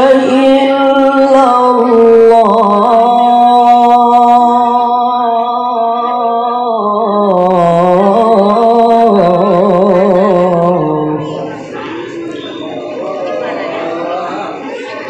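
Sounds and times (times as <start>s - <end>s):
man chanting into a microphone: 0.0s - 11.6s.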